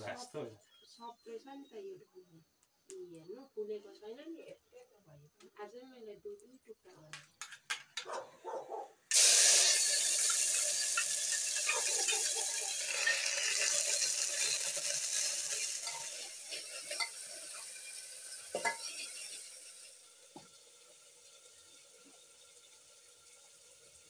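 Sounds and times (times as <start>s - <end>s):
hot oil sizzling in a pot: 9.1s - 24.0s
spoon clinking against pot: 9.6s - 19.4s.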